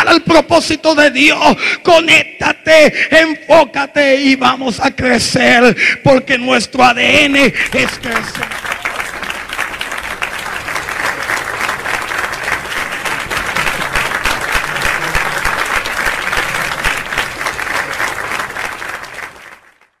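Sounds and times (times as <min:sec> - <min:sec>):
audience applauding: 0:07.2 - 0:20.0.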